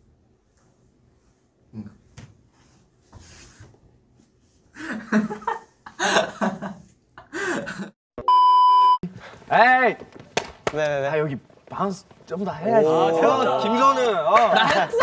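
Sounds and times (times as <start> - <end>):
young men laughing hard: 4.8 - 8.0, 13.3 - 15.0
loud steady test-tone beep: 8.2 - 9.0.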